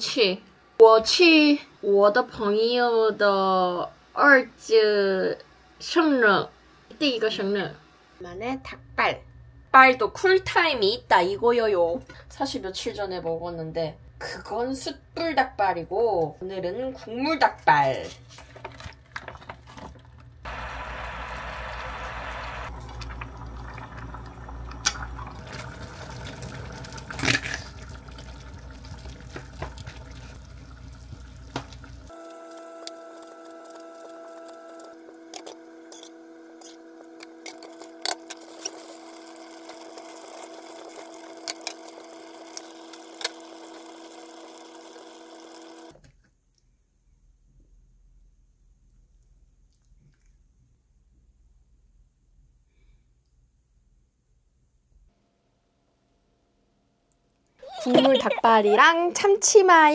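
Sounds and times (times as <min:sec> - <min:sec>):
steady hum: 0:20.5 - 0:38.1.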